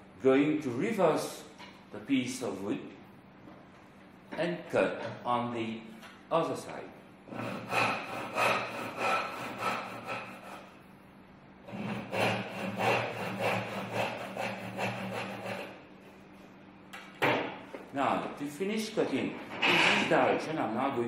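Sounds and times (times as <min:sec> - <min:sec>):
saw cutting wood: 0:07.3 - 0:10.7, 0:11.7 - 0:15.8.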